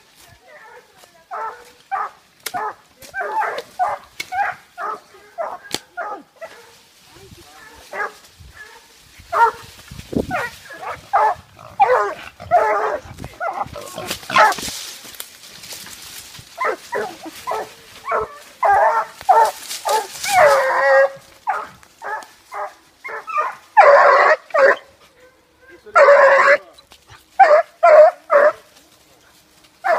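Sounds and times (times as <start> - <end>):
dog barking and yipping: 0.6 - 6.7, 7.6 - 9.7, 10.3 - 13.6, 14.3 - 14.6, 16.6 - 26.7, 27.4 - 28.6.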